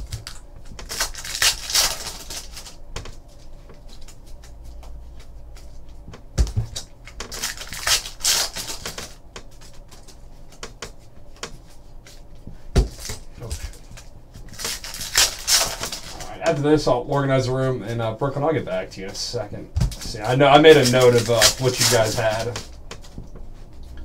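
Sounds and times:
cards clicking: 6.7s - 10.8s, 19.9s - 23.2s
cards sliding and rustling: 6.7s - 16.6s, 20.0s - 23.9s.

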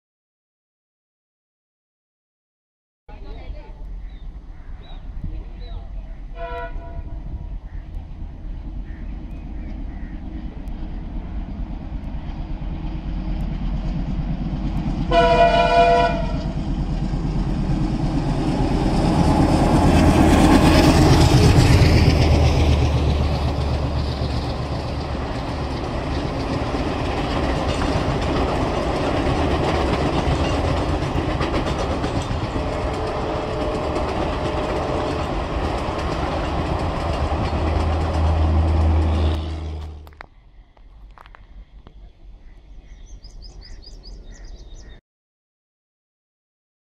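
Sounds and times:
locomotive rumbling past: 3.1s - 40.3s
locomotive horn blast: 6.3s - 7.4s, 15.1s - 16.6s, 32.8s - 35.2s, 38.2s - 40.1s
train coaches clattering over rails: 14.7s - 40.2s.

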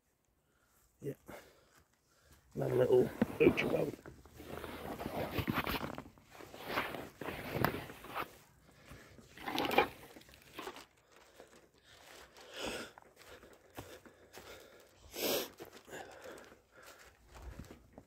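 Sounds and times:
footsteps on dry leaves: 10.4s - 18.0s.

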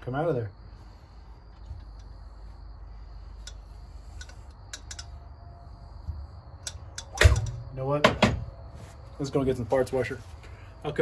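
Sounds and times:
steady low hum: 0.0s - 11.0s
clicks and taps of handling metal tube: 3.4s - 5.2s, 6.6s - 7.6s.

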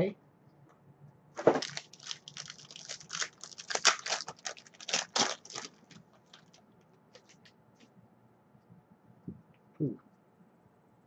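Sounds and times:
foil wrapper tearing and crinkling: 1.4s - 6.6s.

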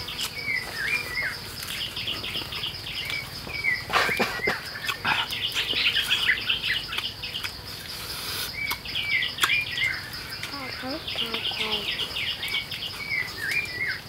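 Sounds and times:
high insect drone: 0.0s - 14.0s
rapid high chattering calls: 0.0s - 14.0s.

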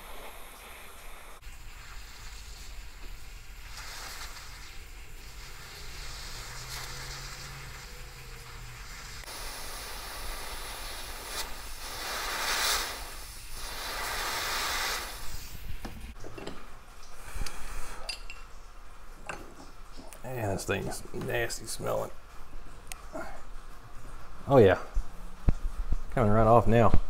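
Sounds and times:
gas torch hissing: 0.0s - 16.1s, 17.1s - 18.2s.

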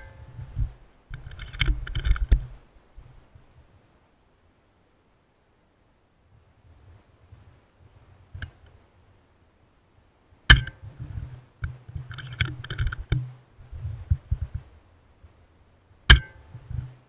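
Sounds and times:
rifle action metallic clicks: 1.1s - 2.5s, 11.6s - 13.2s.

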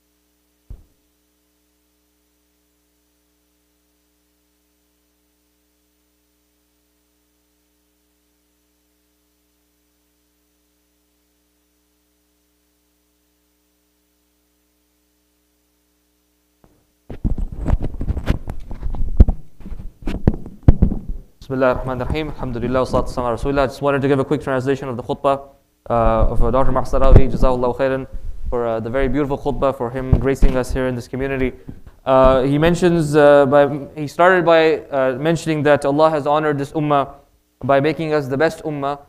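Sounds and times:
electrical hum: 0.0s - 39.0s
microphone being handled: 0.7s - 1.0s, 16.6s - 23.4s, 26.0s - 33.0s.

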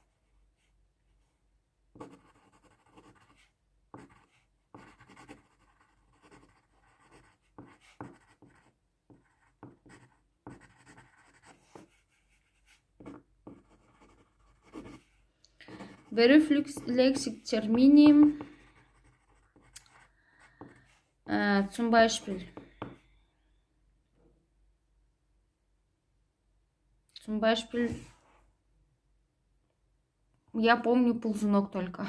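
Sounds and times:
pen scratching on paper: 2.0s - 20.8s.

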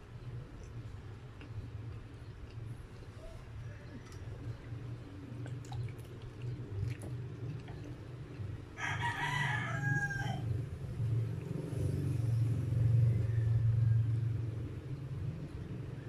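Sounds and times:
rooster crowing: 8.8s - 10.6s, 12.8s - 14.4s.

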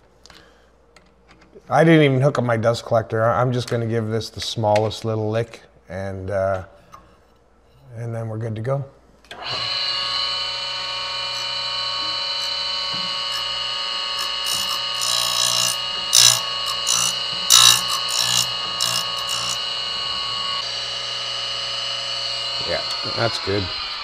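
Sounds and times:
grinder motor humming and whining: 9.3s - 24.0s
short grinding bursts: 9.4s - 24.0s.

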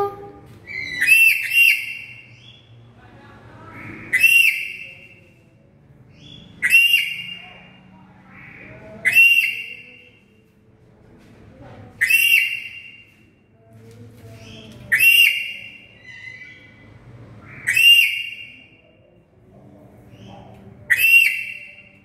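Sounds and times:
parrot whistling calls: 0.7s - 2.2s, 4.1s - 4.9s, 6.6s - 7.4s, 9.0s - 9.8s, 12.0s - 13.0s, 14.9s - 16.6s, 17.5s - 18.6s, 20.9s - 21.8s.

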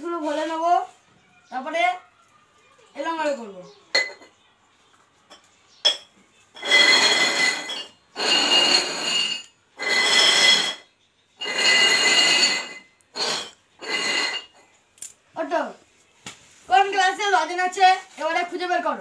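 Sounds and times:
steel tumblers scraping on floor: 6.6s - 14.6s.

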